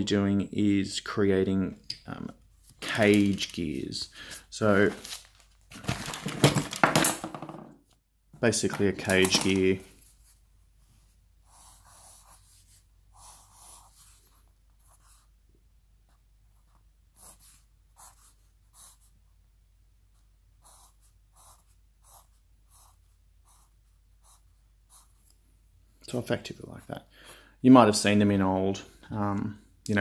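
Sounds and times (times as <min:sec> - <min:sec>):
pencil scratching on paper: 0:11.0 - 0:15.4, 0:16.1 - 0:19.2, 0:20.1 - 0:25.3.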